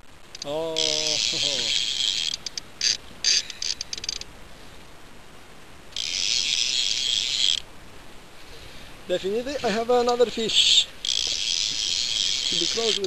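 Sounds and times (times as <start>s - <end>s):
fishing reel ratchet clicking: 0.4s - 4.3s, 6.0s - 7.6s, 11.0s - 13.0s.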